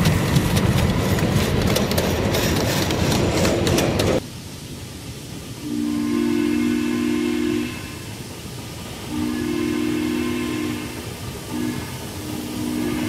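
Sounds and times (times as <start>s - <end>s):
train rumbling on track: 0.0s - 13.0s
steam locomotive chime whistle: 5.6s - 8.2s, 9.0s - 13.0s.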